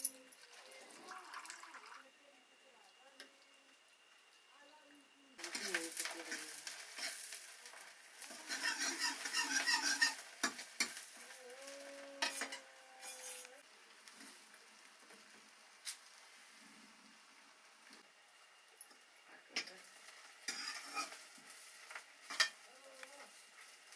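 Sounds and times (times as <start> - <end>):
food frying in oil: 0.0 - 23.9.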